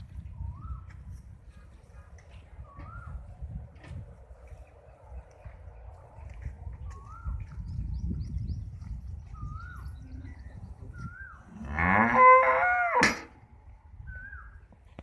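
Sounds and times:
cow mooing: 0:11.6 - 0:13.2.

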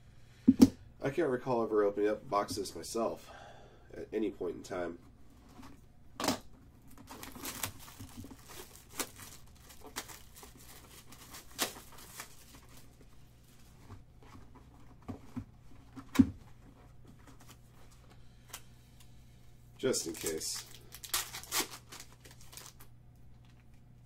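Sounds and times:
faint low hum: 0:00.0 - 0:24.0
plastic wrap tearing and crinkling: 0:06.8 - 0:13.1, 0:19.9 - 0:22.9.

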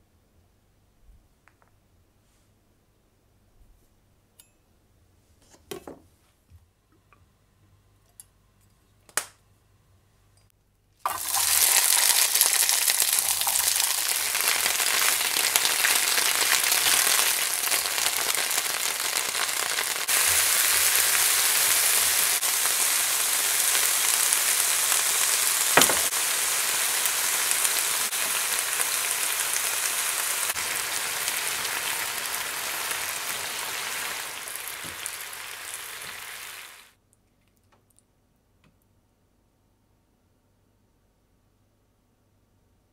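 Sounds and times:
vegetables sizzling in a frying pan: 0:11.0 - 0:36.9.

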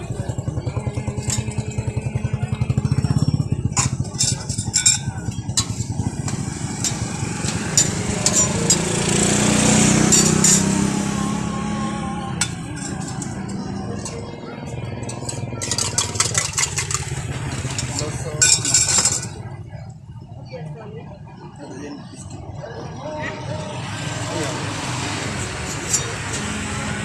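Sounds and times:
small engine running: 0:00.0 - 0:19.4.

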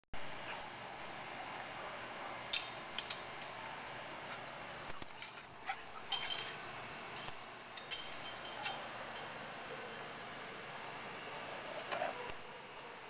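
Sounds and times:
metallic clinks and jingles: 0:04.5 - 0:10.9, 0:11.9 - 0:13.0.

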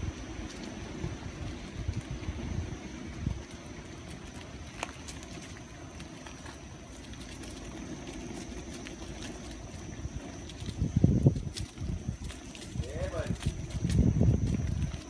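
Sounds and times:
wind on microphone: 0:00.0 - 0:05.4, 0:09.4 - 0:15.0
tyre rolling noise: 0:00.0 - 0:15.0.

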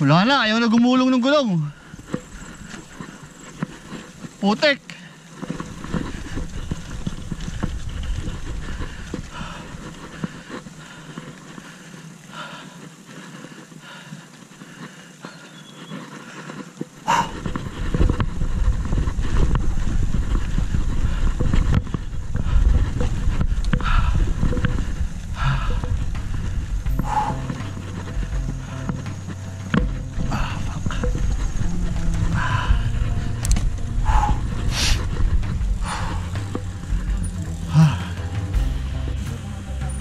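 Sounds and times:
bike tyres on dirt: 0:00.0 - 0:40.0
bike chain and frame clattering: 0:05.3 - 0:12.1, 0:16.8 - 0:38.8
wind on microphone: 0:05.5 - 0:11.1, 0:17.0 - 0:38.0.

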